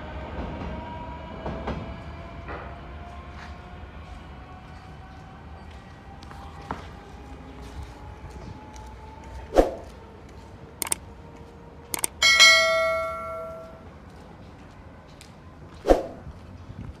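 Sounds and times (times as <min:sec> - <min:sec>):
quick clicks: 0:10.8 - 0:11.0, 0:11.9 - 0:12.2
notification bell ding: 0:12.0 - 0:13.8.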